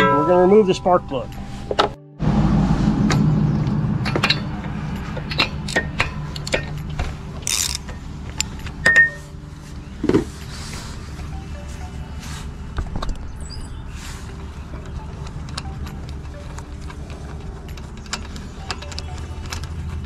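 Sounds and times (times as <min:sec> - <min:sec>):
dull rumble of handling: 0:00.0 - 0:20.0
ratchet wrench clicking: 0:07.4 - 0:07.9.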